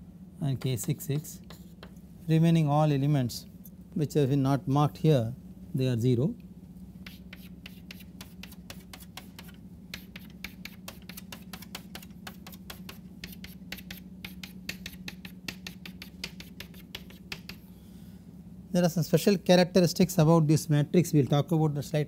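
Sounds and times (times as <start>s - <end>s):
chalk strokes on blackboard: 0.8s - 1.9s, 7.0s - 17.6s.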